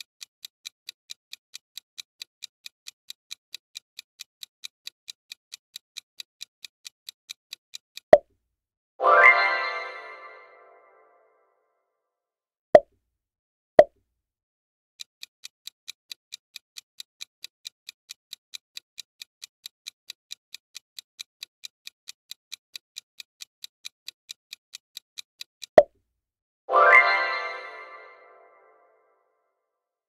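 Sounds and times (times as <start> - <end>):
countdown timer ticking: 9.0 - 11.1.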